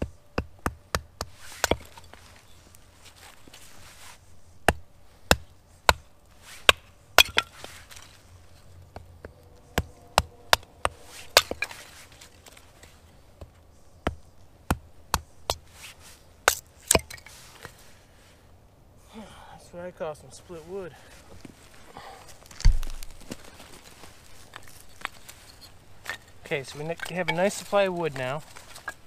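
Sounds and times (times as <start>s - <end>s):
hatchet chopping kindling on wood: 0.0s - 2.0s, 9.7s - 11.9s.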